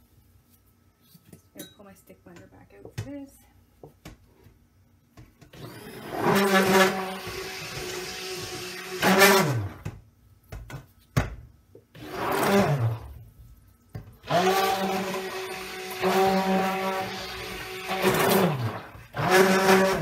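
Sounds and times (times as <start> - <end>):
stick blender running: 5.5 - 9.9, 12.0 - 13.2, 14.2 - 20.0.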